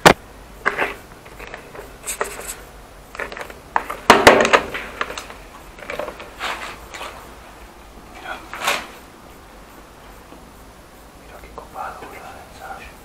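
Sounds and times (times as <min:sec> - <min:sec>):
plastic binder scraping and rustling: 0:00.6 - 0:07.3, 0:08.5 - 0:09.0.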